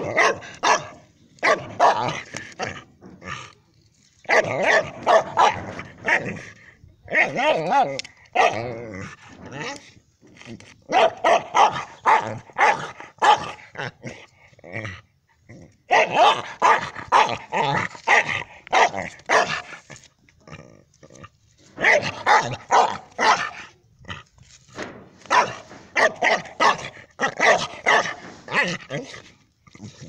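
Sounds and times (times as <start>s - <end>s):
dog barking: 0.0s - 2.2s, 4.3s - 6.3s, 7.2s - 8.6s, 10.9s - 13.6s, 15.9s - 17.4s, 18.1s - 19.6s, 21.8s - 23.6s, 25.3s - 28.8s.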